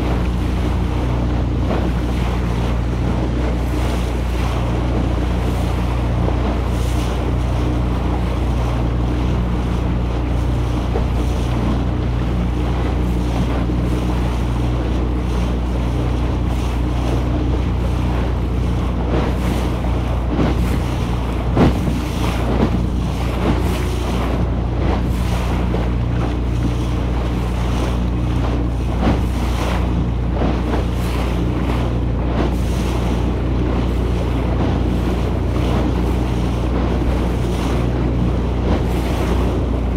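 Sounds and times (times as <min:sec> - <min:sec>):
motorboat engine humming: 0:00.0 - 0:39.9
water rushing along hull: 0:00.0 - 0:39.9
wind buffeting microphone: 0:00.0 - 0:39.9.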